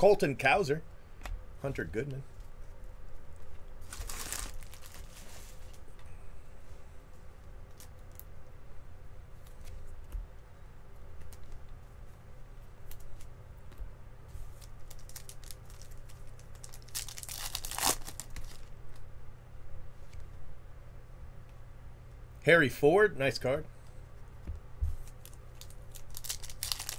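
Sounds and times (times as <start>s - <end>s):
wrapper ripping open: 3.8s - 5.6s, 14.6s - 18.7s, 25.1s - 26.9s
cards clicking and rustling: 25.0s - 26.9s.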